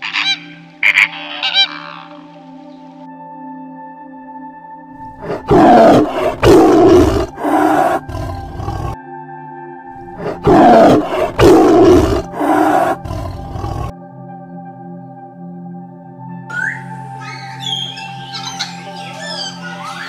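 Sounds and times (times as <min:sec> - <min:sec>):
background music with held tones: 0:00.0 - 0:20.0
tiger roaring: 0:05.0 - 0:09.0, 0:10.1 - 0:13.9.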